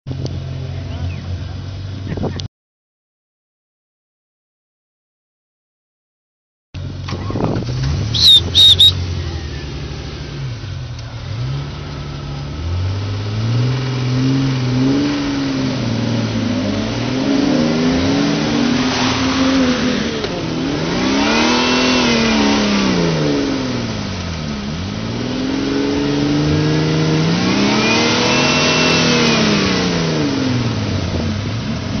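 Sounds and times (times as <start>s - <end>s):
engine revving: 6.8s - 32.0s.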